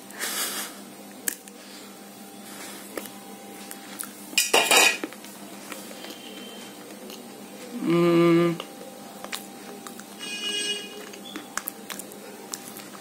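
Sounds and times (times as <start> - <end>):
gritty crunch of chewing clay: 11.0 - 13.0.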